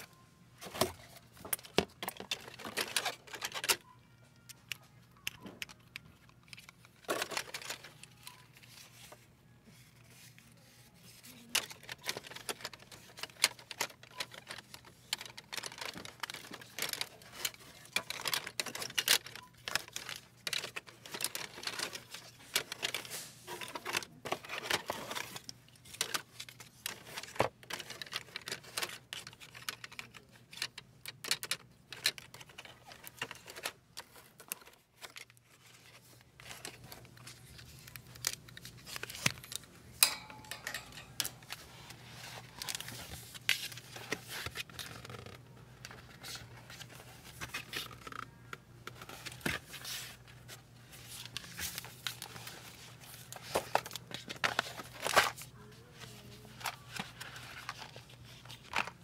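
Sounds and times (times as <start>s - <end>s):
board book pages turning: 0.0s - 39.9s, 41.2s - 59.0s
plastic pieces clicking and rattling: 1.4s - 8.6s, 11.1s - 50.1s.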